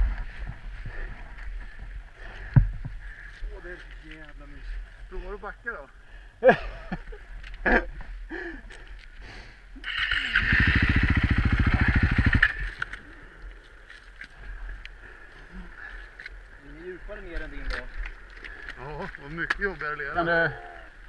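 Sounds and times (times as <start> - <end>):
dirt bike engine running: 9.8 - 13.0.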